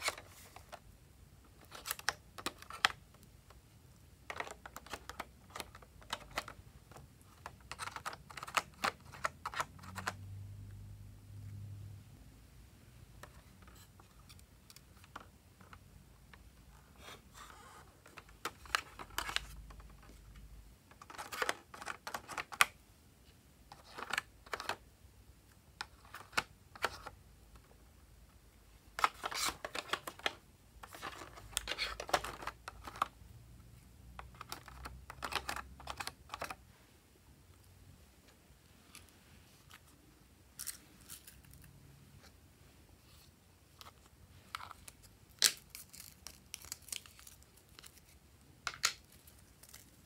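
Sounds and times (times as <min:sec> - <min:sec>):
plastic spatula scraping and clicking: 0:04.2 - 0:10.2, 0:13.2 - 0:22.8, 0:28.9 - 0:33.2, 0:34.2 - 0:36.6.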